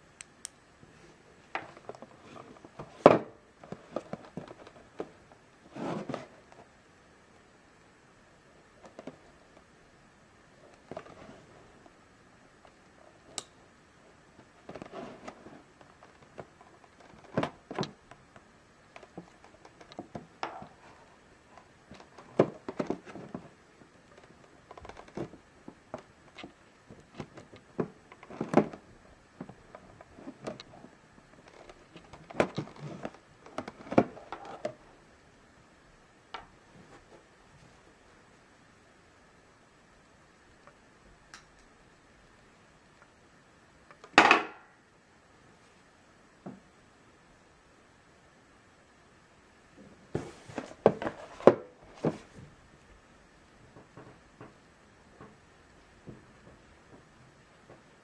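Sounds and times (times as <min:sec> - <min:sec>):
knife and hands on cardboard: 0:05.7 - 0:06.4.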